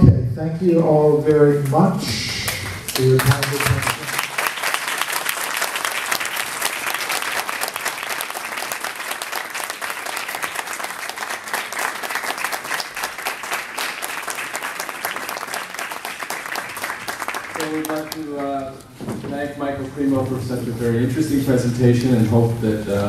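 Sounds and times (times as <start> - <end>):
audience applauding: 2.1 - 18.9.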